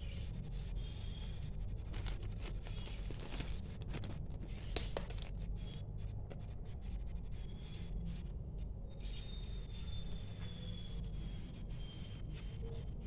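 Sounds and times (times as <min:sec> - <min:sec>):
plastic bag and paper rustling: 0:01.8 - 0:05.4.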